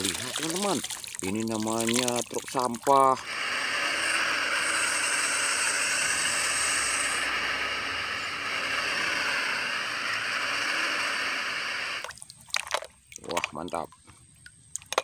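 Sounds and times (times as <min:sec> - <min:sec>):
thin high whine: 0:03.0 - 0:12.1
garbage truck machinery noise: 0:03.1 - 0:12.0.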